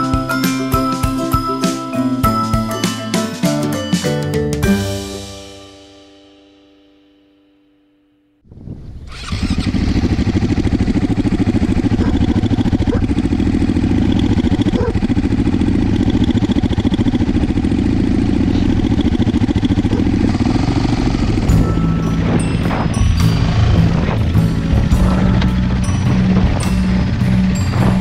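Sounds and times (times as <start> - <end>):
motorcycle engine running: 8.6 - 28.0.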